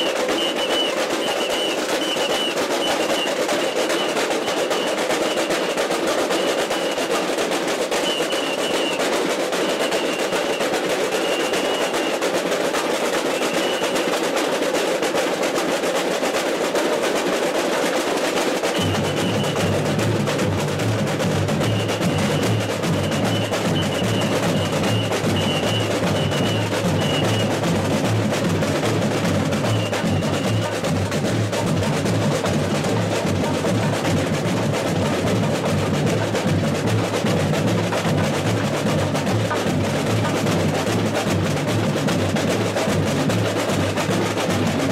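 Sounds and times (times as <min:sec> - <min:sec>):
samba drums playing: 0:00.0 - 0:44.9
deep bass drum: 0:18.8 - 0:44.9.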